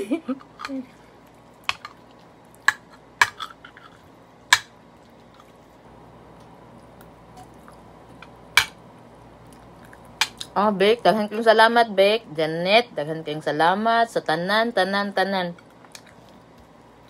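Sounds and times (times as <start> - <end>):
faint chewing: 0.4 - 4.2, 4.9 - 8.4, 9.3 - 10.6, 15.6 - 17.0.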